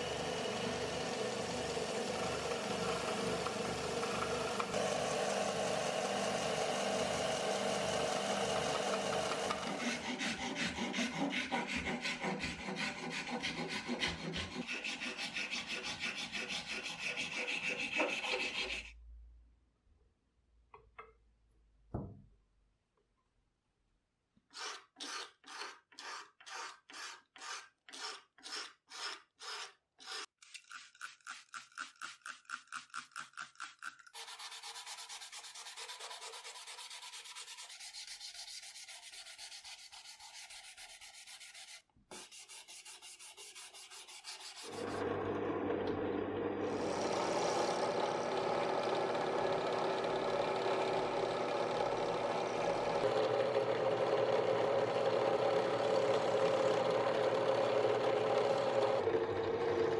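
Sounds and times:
drill press motor boring: 0:00.0 - 0:12.4, 0:44.7 - 0:59.9
sandpaper rubbing: 0:09.8 - 0:18.9, 0:25.0 - 0:44.8
steel blade scraping resin: 0:09.8 - 0:18.9, 0:24.5 - 0:44.8.

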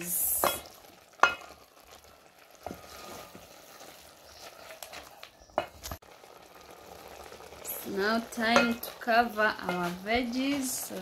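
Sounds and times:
faint sizzling: 0:00.0 - 0:11.0
wooden spoon stirring in pot: 0:00.0 - 0:11.0.

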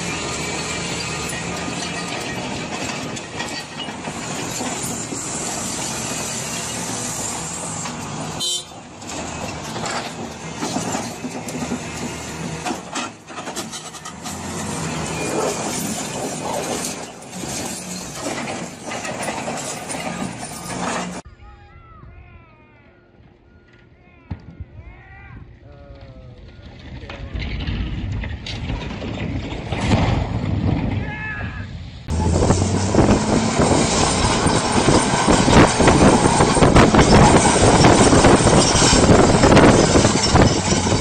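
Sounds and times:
wheel loader diesel engine: 0:00.0 - 0:21.3, 0:31.7 - 0:41.0.

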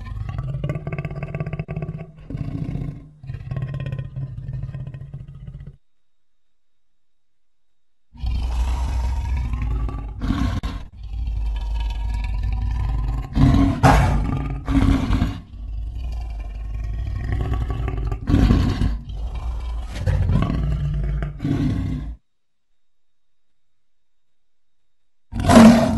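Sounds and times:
lion roaring and growling: 0:00.0 - 0:05.8, 0:08.1 - 0:22.2, 0:25.3 - 0:25.9.

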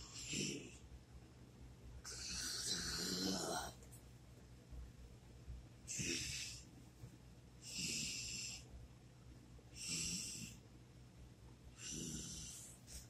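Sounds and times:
person's rasping snore-like breaths: 0:00.1 - 0:00.7, 0:02.1 - 0:03.8, 0:05.9 - 0:06.6, 0:07.6 - 0:08.6, 0:09.8 - 0:10.6, 0:11.8 - 0:12.8.

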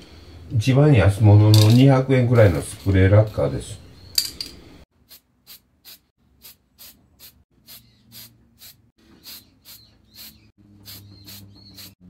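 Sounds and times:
spray can hissing: 0:05.0 - 0:12.0.

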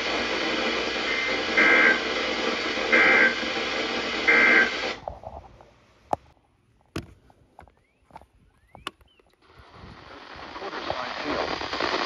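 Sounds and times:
radio static hiss: 0:00.0 - 0:06.2, 0:08.6 - 0:12.0.

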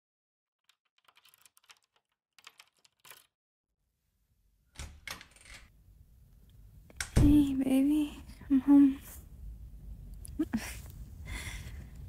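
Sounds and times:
keys rattling in a door lock: 0:00.6 - 0:03.3, 0:04.8 - 0:05.7
door opening with knocks: 0:07.0 - 0:07.5.

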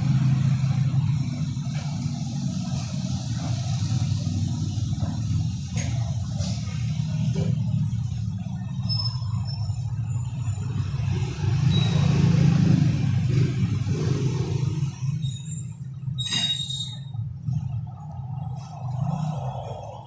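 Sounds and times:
road traffic rumble: 0:00.0 - 0:20.0
ringing metal clank: 0:16.2 - 0:17.1.

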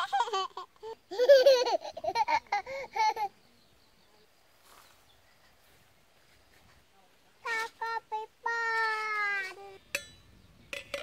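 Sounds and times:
woman and child laughing: 0:00.0 - 0:03.5.

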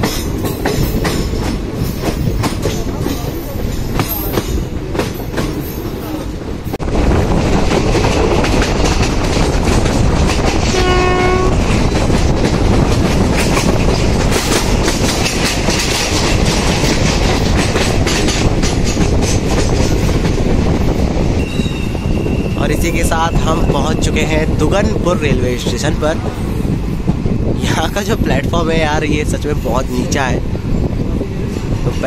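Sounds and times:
train wheels clattering: 0:00.0 - 0:22.6
train horn blast: 0:10.7 - 0:11.6.

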